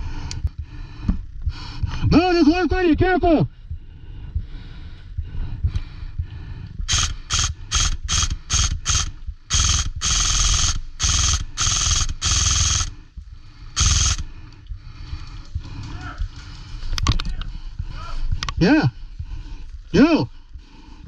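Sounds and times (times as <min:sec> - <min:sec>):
airsoft gun firing bursts: 0:06.9 - 0:13.0, 0:13.8 - 0:14.3.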